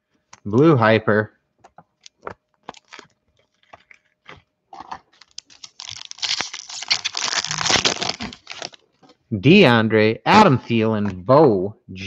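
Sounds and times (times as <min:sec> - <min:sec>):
foil wrapper tearing and crinkling: 0:02.0 - 0:08.8.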